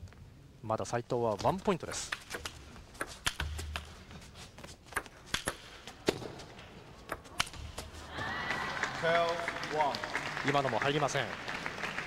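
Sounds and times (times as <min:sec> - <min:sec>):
table tennis ball hitting bats: 0:01.8 - 0:04.0, 0:04.8 - 0:08.0.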